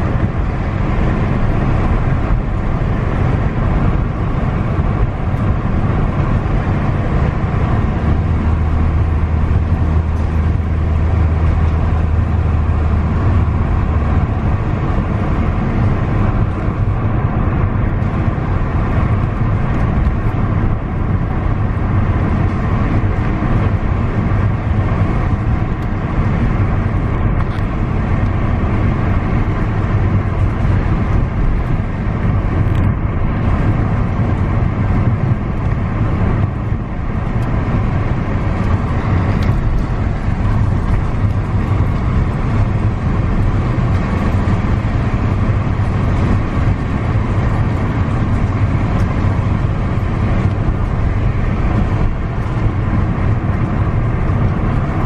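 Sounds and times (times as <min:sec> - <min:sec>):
car driving rumble: 0:00.0 - 0:55.0
deep hum: 0:00.0 - 0:55.0.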